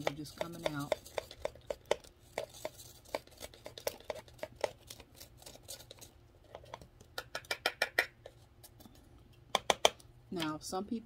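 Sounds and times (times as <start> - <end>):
tool scraping inside plastic cup: 0.0 - 6.8.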